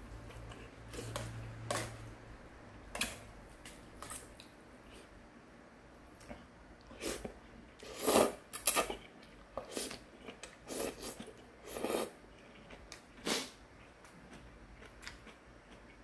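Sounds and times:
person slurping noodles: 7.8s - 8.9s, 10.7s - 12.2s.

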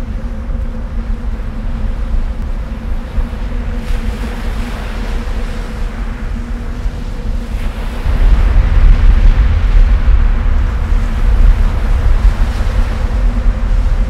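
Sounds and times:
volcanic eruption rumble: 5.2s - 14.0s.

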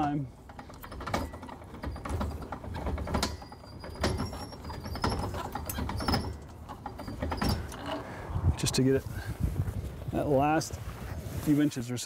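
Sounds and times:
hand crank turning: 0.0s - 8.1s
mechanism knocking and creaking: 0.0s - 8.1s.

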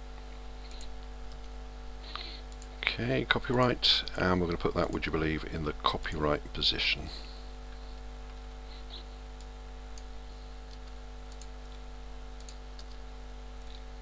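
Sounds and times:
low electrical hum: 0.0s - 14.0s
computer mouse clicks: 0.7s - 1.6s, 8.3s - 13.0s, 13.6s - 13.9s
keyboard clicks: 9.4s - 11.8s, 12.4s - 13.0s.

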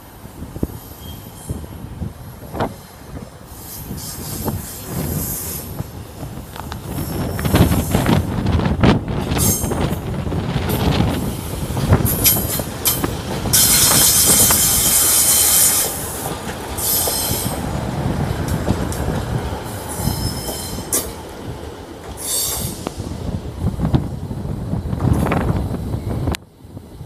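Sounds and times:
train wheels squealing: 0.8s - 1.8s, 3.5s - 5.8s, 12.1s - 16.1s, 16.8s - 17.6s, 19.7s - 21.2s, 22.2s - 23.1s.

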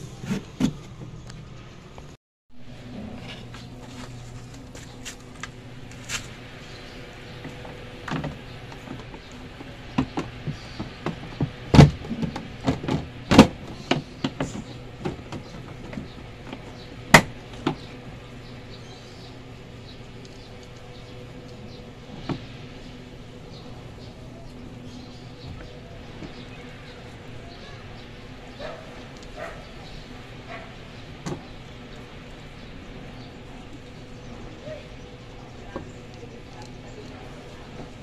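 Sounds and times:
plastic panel bangs: 9.9s - 16.2s.

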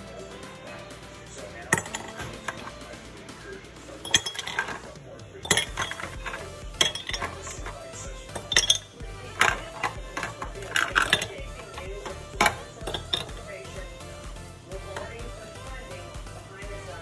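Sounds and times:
background music: 0.0s - 17.0s
ice cubes clinking in a glass: 1.7s - 2.7s, 4.0s - 4.8s, 5.4s - 13.4s.

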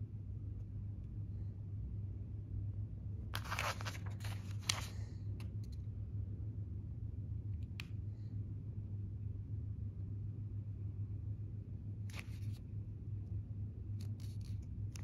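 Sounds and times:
steady low hum: 0.0s - 15.0s
paper page rustling: 3.3s - 5.0s, 12.1s - 12.7s, 14.0s - 15.0s.

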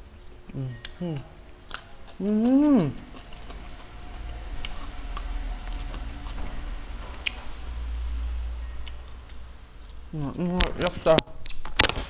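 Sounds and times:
close chewing and mouth clicks: 0.4s - 10.2s, 11.4s - 11.9s
low rumble: 2.6s - 10.6s.

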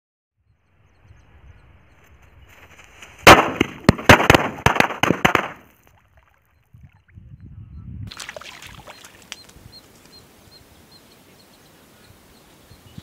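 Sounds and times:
firecrackers bursting: 3.2s - 5.7s.

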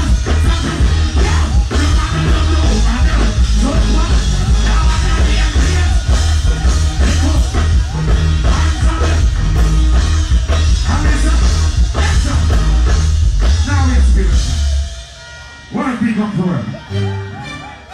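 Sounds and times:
person singing into microphone: 0.0s - 9.9s
live reggae band playing: 0.0s - 17.9s.

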